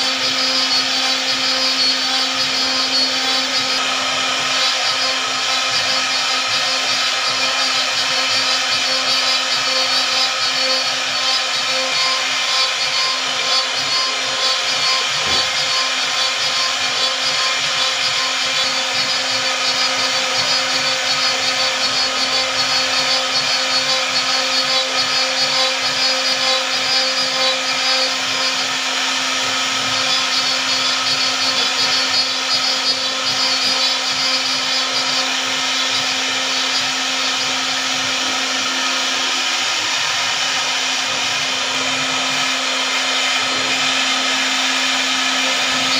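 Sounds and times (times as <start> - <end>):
electric motor whining: 0.0 - 45.9.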